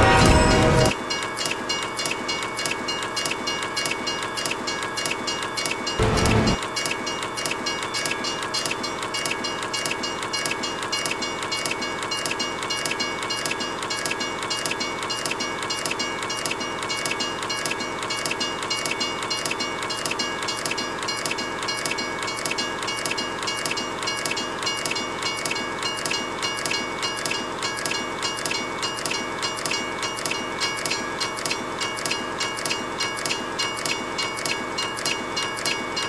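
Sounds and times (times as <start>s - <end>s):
train clacking on rails: 0.0s - 36.0s
high steady tones: 6.0s - 6.6s.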